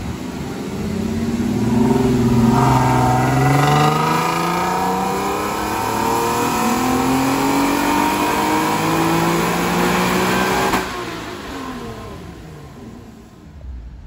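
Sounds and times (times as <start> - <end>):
exhaust crack: 0.0 - 9.0
car exhaust accelerating: 0.0 - 14.0.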